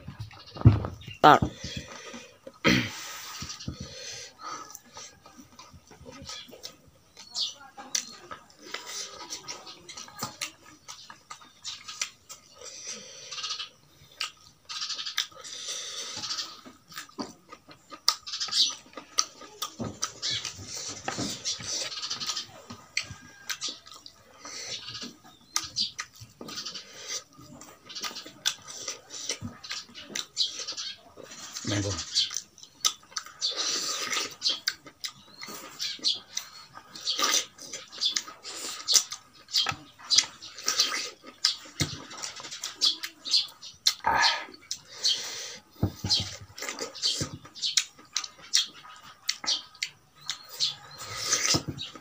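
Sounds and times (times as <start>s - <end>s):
wet chewing and lip smacking: 3.2s - 52.0s
sharp mouth clicks: 43.8s - 44.9s.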